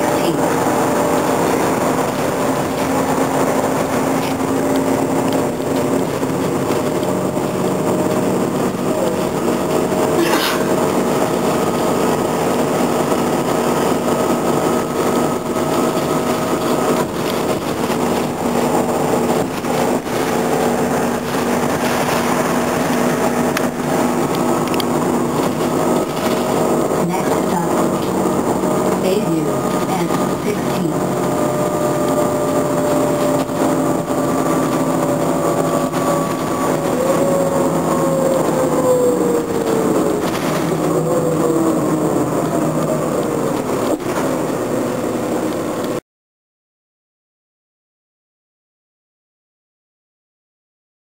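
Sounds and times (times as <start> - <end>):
bus engine droning: 0.0 - 46.0.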